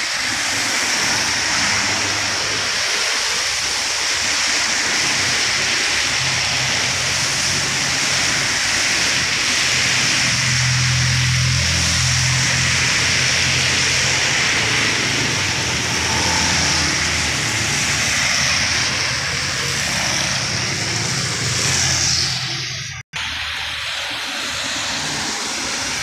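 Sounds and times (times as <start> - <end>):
falling rain: 0.0 - 21.8
tyres hissing on wet asphalt: 0.0 - 26.0
low engine hum: 6.1 - 23.0.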